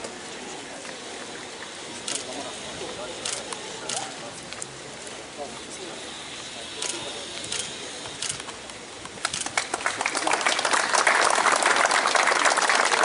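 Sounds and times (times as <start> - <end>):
audience applause: 9.3 - 13.0.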